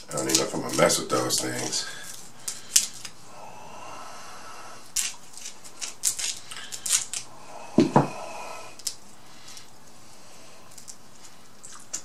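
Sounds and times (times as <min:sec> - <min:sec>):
shears cracking crab shells: 0:00.1 - 0:03.2, 0:04.9 - 0:08.0, 0:08.8 - 0:09.7.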